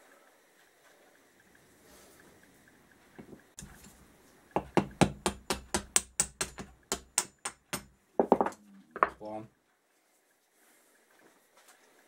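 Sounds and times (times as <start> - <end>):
hammer tapping metal: 4.6 - 9.1.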